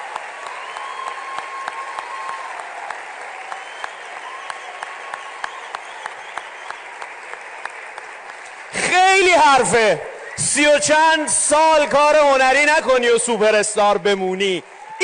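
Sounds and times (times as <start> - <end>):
nearby claps: 0.0 - 9.0
audience applauding: 0.0 - 11.1, 11.7 - 15.0.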